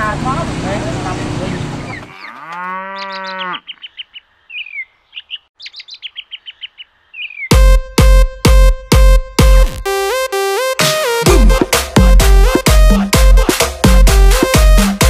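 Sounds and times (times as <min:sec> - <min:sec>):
small birds chirping: 0:01.4 - 0:07.6
cow mooing: 0:02.1 - 0:03.7
electronic dance beat: 0:07.5 - 0:15.0.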